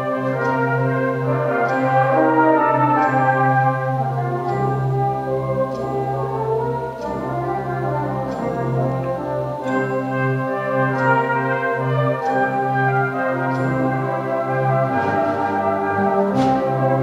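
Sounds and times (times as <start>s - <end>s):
brass band playing slow chords: 0.0s - 17.0s.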